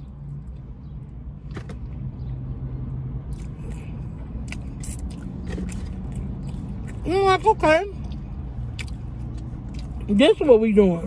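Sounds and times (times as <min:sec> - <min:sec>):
low hum in car cabin: 0:00.0 - 0:11.0
person chewing: 0:03.3 - 0:10.1.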